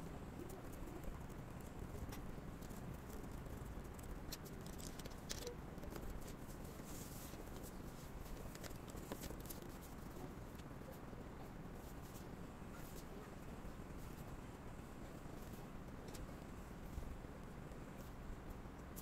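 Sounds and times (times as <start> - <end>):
low room hum: 0.0 - 19.0
small desk items clicking: 0.8 - 6.5
paper rustle: 3.9 - 10.6.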